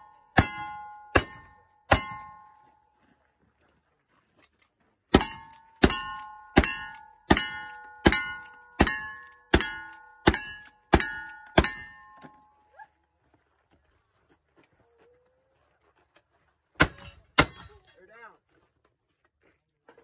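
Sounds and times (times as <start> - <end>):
steel target ringing: 0.0 - 2.7, 5.1 - 12.4, 16.8 - 17.8.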